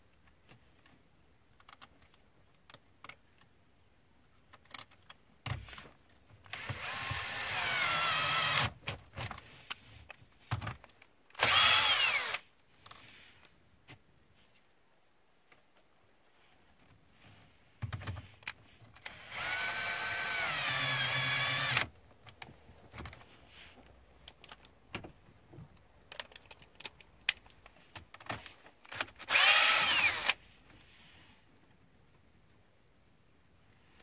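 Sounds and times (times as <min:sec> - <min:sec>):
cordless drill running: 0:06.5 - 0:09.2, 0:11.4 - 0:12.4, 0:19.0 - 0:23.0, 0:28.9 - 0:30.4.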